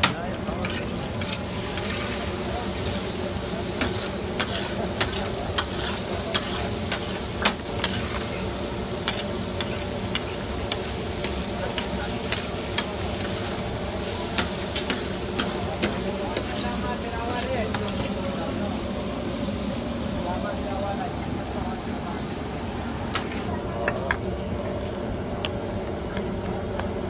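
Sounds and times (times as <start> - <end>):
meat sizzling on griddle: 0.0 - 23.5
metal spatula scraping griddle: 0.5 - 3.1, 3.7 - 18.2, 23.1 - 23.5.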